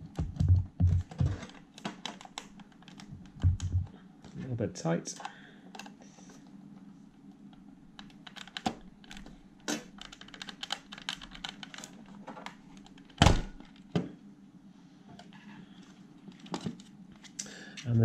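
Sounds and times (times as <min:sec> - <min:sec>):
plastic clicks and creaks: 0:05.1 - 0:06.0.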